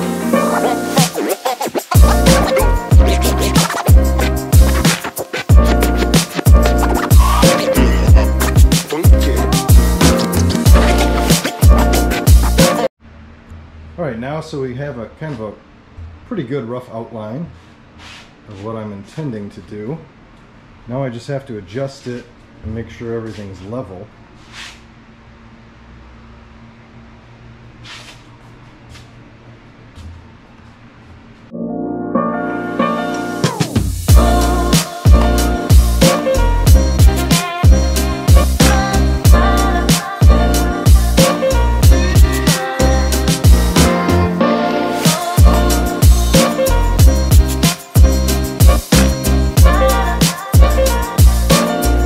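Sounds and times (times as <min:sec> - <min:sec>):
music with heavy bass beat: 0:00.0 - 0:12.9, 0:33.4 - 0:44.3, 0:45.0 - 0:52.0
short hissing scrapes: 0:17.6 - 0:18.7, 0:24.4 - 0:24.9, 0:27.8 - 0:28.3.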